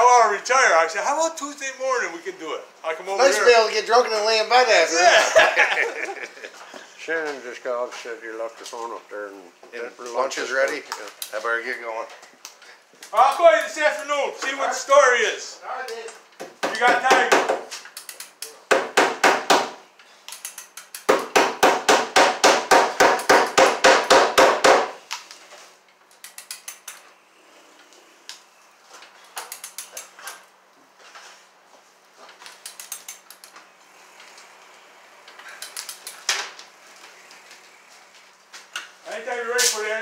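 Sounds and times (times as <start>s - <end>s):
hammer striking wood: 16.4s - 17.7s, 18.7s - 19.8s, 21.1s - 25.0s.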